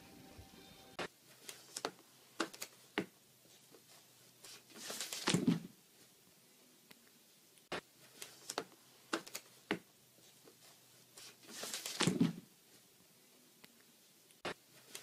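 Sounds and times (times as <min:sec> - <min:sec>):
paper and cardboard rustling: 0:01.2 - 0:02.9, 0:03.5 - 0:06.1, 0:10.2 - 0:12.4.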